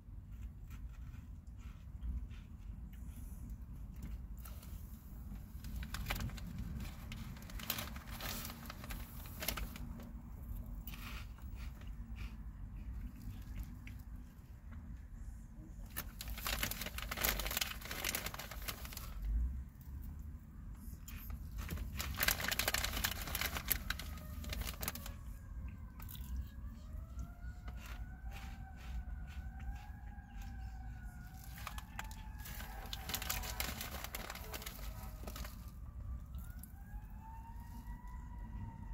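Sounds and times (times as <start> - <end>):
low steady rumble: 0.0 - 38.9
faint siren wailing: 6.1 - 38.9.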